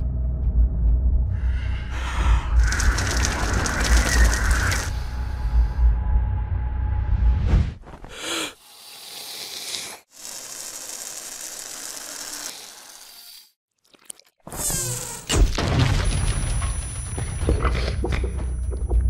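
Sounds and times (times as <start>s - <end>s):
hissing crackling texture: 2.5s - 5.6s.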